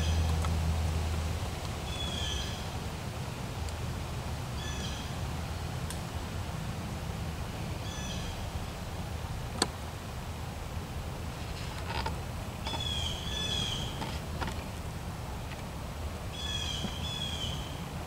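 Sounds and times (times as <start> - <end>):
steady low hum: 0.0 - 18.0
bird calling: 1.8 - 2.7, 4.6 - 5.2, 7.8 - 8.4, 12.6 - 14.6, 16.3 - 17.9.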